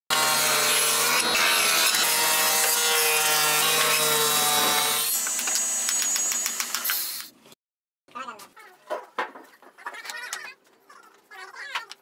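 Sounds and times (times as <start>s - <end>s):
saw blade cutting wood: 0.1s - 7.2s.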